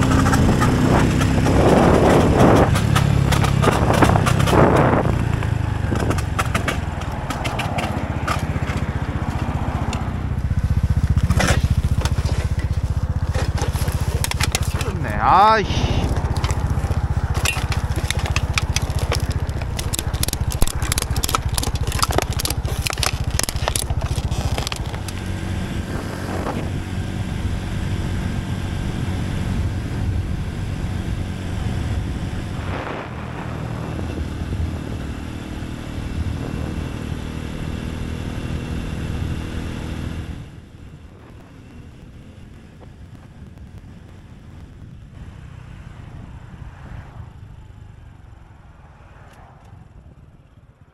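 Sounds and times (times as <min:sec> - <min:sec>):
motorcycle engine running: 0:00.0 - 0:50.9
road noise: 0:00.0 - 0:50.9
plastic bag crackling: 0:16.1 - 0:25.2.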